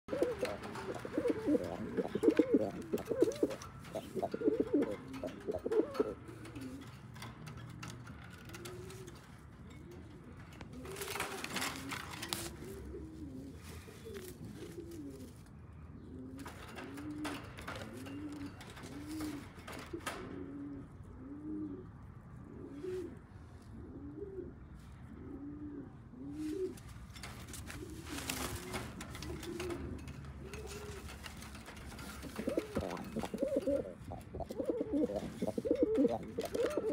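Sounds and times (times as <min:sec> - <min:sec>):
pigeons cooing: 0:00.1 - 0:36.9
rustles or knocks: 0:26.8 - 0:36.9.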